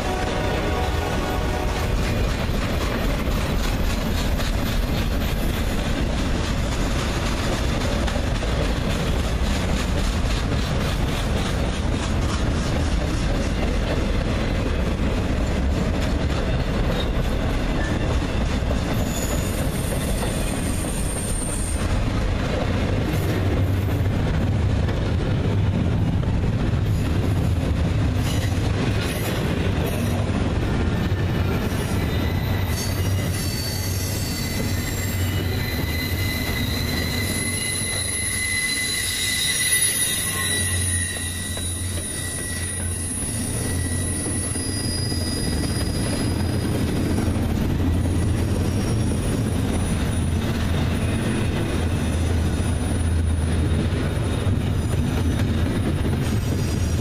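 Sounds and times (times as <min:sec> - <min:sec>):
train wheels rumbling on rail: 0:00.0 - 0:57.0
high wheel squeal: 0:16.9 - 0:21.9, 0:31.5 - 0:46.8.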